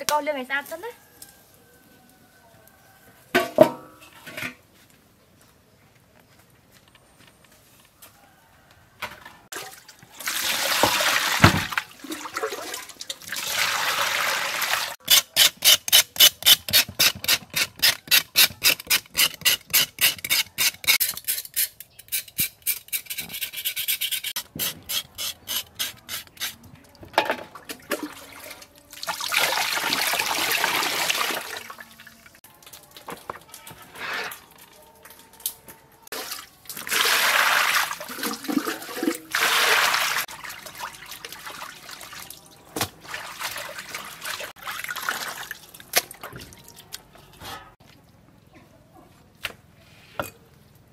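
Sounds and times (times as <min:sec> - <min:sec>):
knife scraping charred skin: 0:15.0 - 0:26.6.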